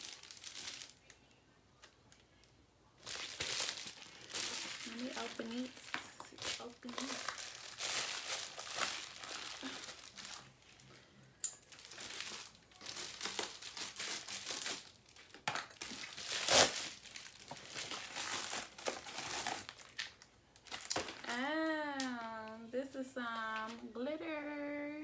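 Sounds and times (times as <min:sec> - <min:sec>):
plastic bag tearing and crinkling: 0:00.0 - 0:01.1, 0:03.0 - 0:10.8, 0:11.6 - 0:22.5
sharp plastic crackle: 0:00.0 - 0:10.9, 0:11.5 - 0:22.6.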